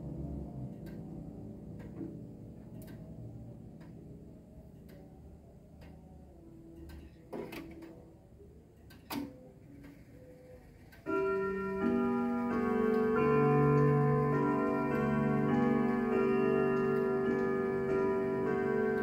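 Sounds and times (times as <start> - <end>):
grandfather clock ticking: 0.0 - 5.2, 11.0 - 19.0
loud clock clicks: 0.7 - 1.1, 11.0 - 19.0
clock chime melody: 11.0 - 19.0.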